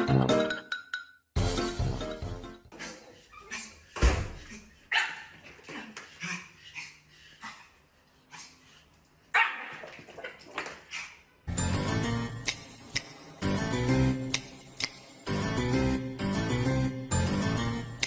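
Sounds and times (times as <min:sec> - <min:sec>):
small puppy barking: 0:09.4 - 0:09.9.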